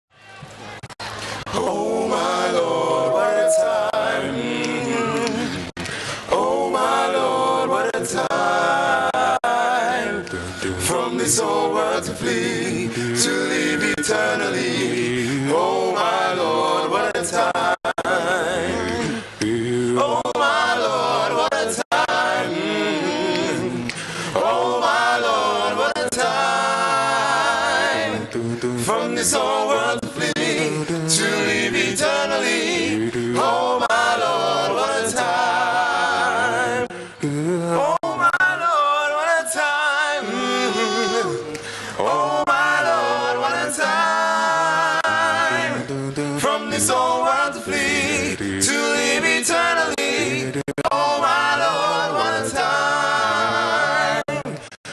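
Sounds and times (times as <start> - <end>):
men singing in close harmony: 1.5 - 54.7
singers breathing: 5.8 - 6.3, 23.8 - 24.4, 36.9 - 37.3, 41.4 - 42.0.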